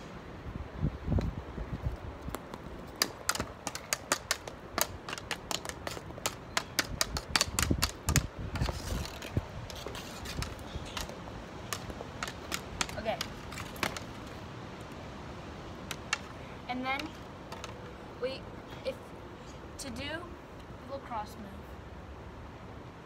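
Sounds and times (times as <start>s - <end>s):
floorball stick and ball clicking: 2.3s - 14.4s, 15.8s - 16.3s.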